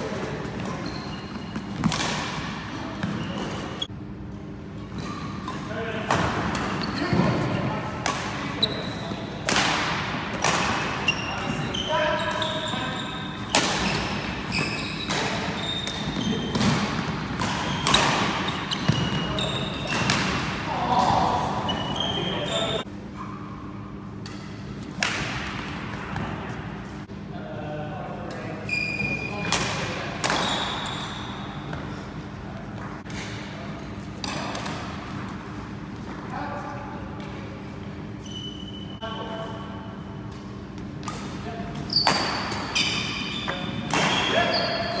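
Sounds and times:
shoes squeaking on wooden floor: 0.6 - 1.9, 11.0 - 16.5, 17.6 - 19.9, 21.2 - 22.8
rackets hitting shuttlecock: 1.5 - 3.7, 5.0 - 11.6, 13.4 - 21.9, 24.2 - 26.4, 29.4 - 30.9, 34.2 - 35.3, 40.3 - 44.6.

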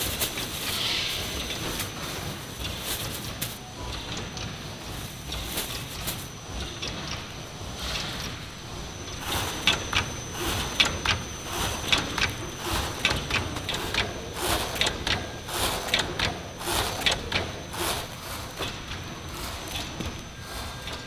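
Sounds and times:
machinery high whine: 0.0 - 21.0.

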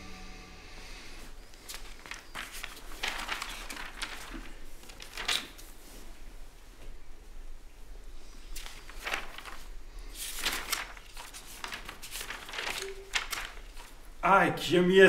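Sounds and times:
held musical note: 0.0 - 1.3
soft rustling and shuffling: 1.2 - 14.2.

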